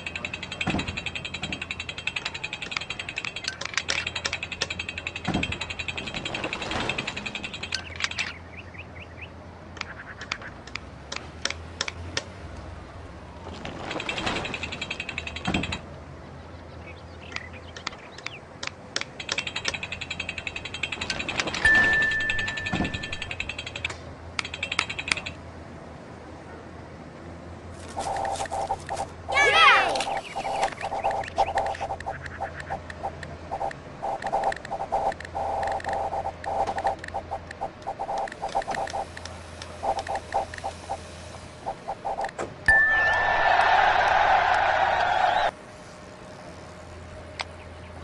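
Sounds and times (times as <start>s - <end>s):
mechanical ratcheting clicks: 0.0s - 8.3s, 17.3s - 21.6s.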